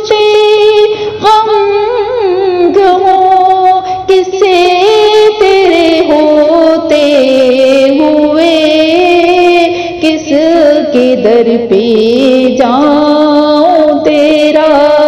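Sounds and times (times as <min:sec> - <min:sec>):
woman singing: 0:00.0 - 0:15.0.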